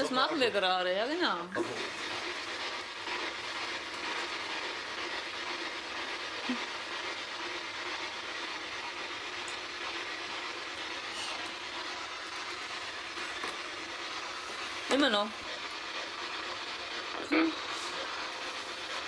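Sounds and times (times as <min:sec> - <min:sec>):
radio static hiss: 0:00.0 - 0:19.0.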